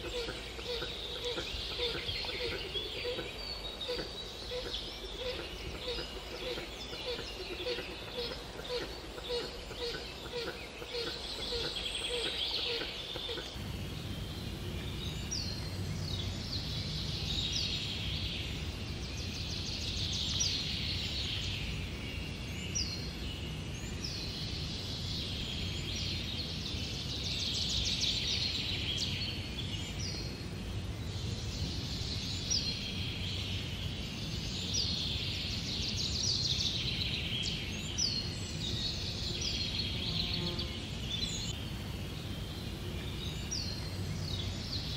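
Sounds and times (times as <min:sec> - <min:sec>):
songbirds calling: 0:00.0 - 0:44.9.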